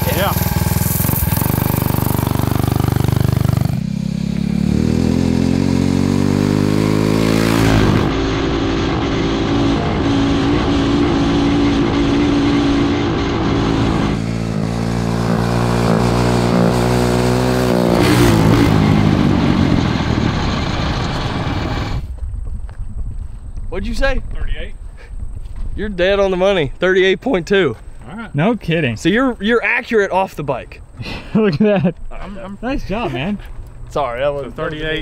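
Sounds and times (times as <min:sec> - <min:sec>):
motorbike engine revving: 0:00.0 - 0:22.0.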